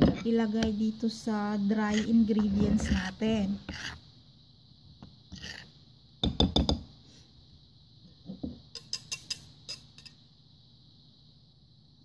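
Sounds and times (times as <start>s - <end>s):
spoon knocking on mixing bowl: 6.2s - 6.8s.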